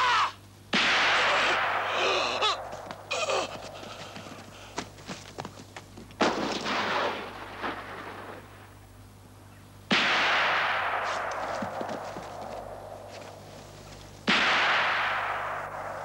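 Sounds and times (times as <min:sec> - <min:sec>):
rifle shots echoing: 0:06.2 - 0:08.8, 0:09.9 - 0:13.5, 0:14.2 - 0:16.0.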